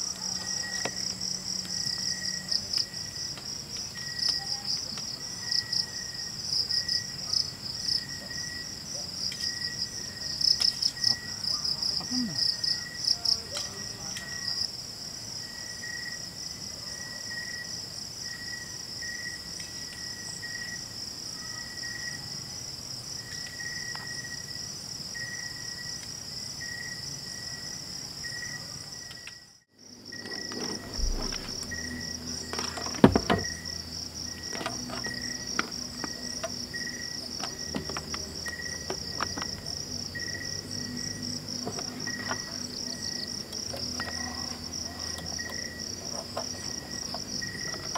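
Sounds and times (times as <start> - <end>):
crickets trilling: 0.0 - 47.9
low insect chirp: 0.0 - 47.9
faint low hum: 29.9 - 47.9.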